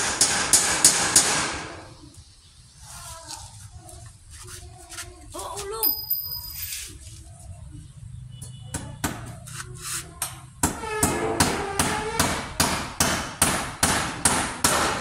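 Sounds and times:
hammer striking nails into metal: 0.0s - 1.6s, 10.6s - 15.0s
short metallic ring: 5.8s - 6.9s.

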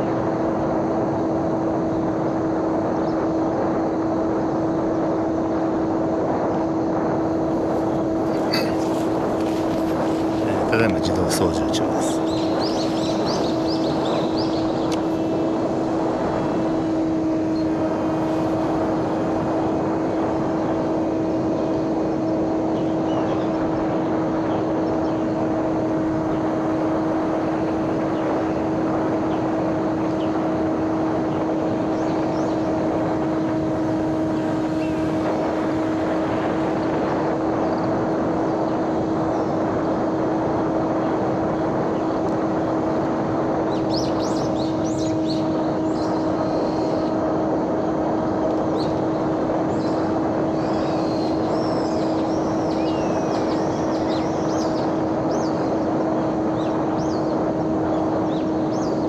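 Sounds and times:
electric motor and propeller droning: 0.0s - 59.0s
noisy rush: 0.0s - 59.0s.

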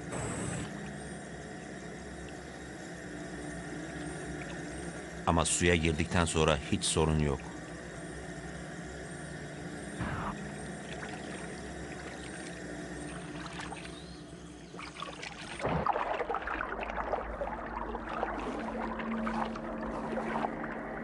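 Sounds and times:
water sloshing and splashing: 10.1s - 21.0s.

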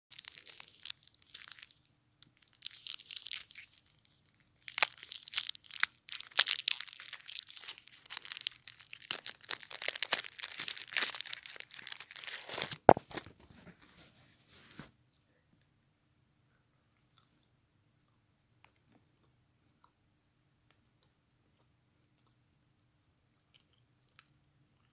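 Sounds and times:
plastic wrapper crinkling: 0.1s - 13.5s.

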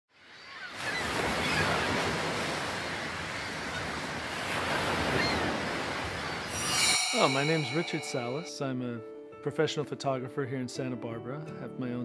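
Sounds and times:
ocean waves washing: 0.7s - 8.6s.

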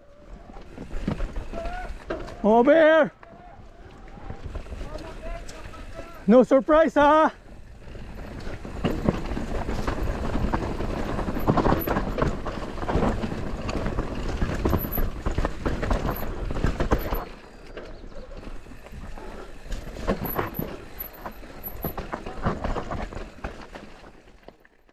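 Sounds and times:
bike rattling and knocking: 4.1s - 6.2s, 7.2s - 24.9s
tyres crunching over gravel: 7.5s - 24.9s.

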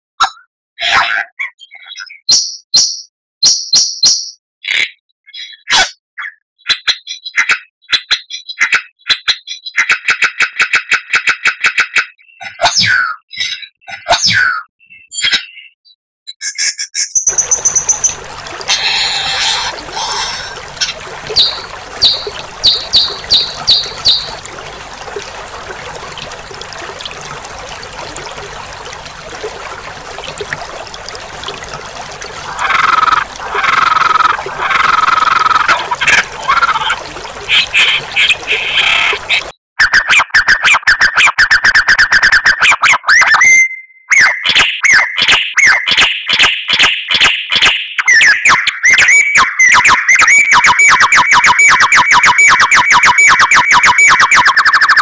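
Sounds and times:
songbirds calling: 17.2s - 39.5s.

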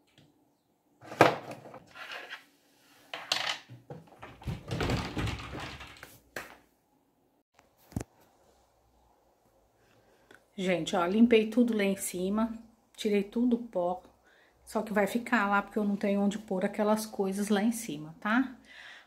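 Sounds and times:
bottles clattering on wooden shelf: 3.2s - 6.1s.

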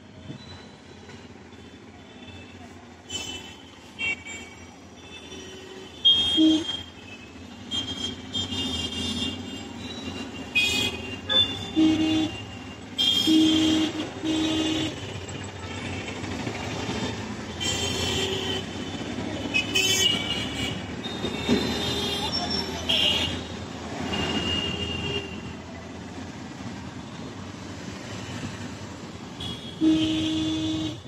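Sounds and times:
car horn honks: 29.4s - 31.0s.

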